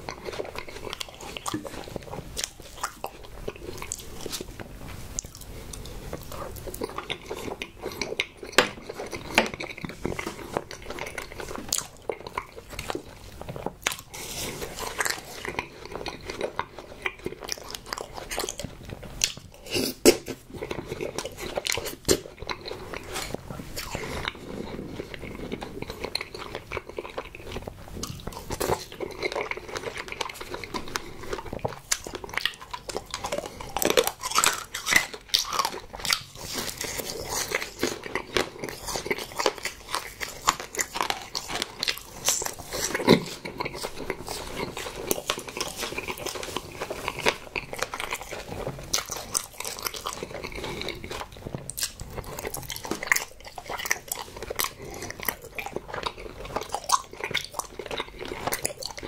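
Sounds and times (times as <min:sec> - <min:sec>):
close chewing and mouth sounds: 0:00.0 - 0:59.0.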